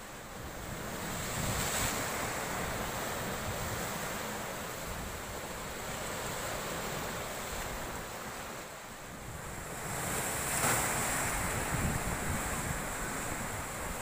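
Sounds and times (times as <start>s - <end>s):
sea waves crashing on rocks: 0.4s - 8.6s, 9.4s - 14.0s
wind buffeting microphone: 9.2s - 14.0s.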